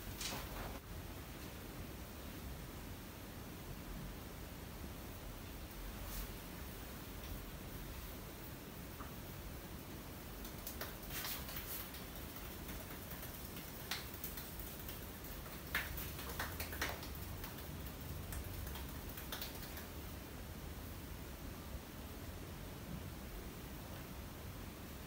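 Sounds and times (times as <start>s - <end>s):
faint hiss: 0.0s - 25.0s
fingers tapping on skin: 10.4s - 19.9s.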